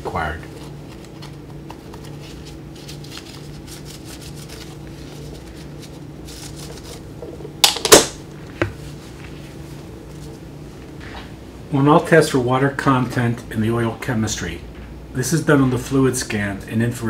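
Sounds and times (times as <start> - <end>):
faint steady hum: 0.0 - 17.0
paper pad rustling on metal: 0.5 - 7.1.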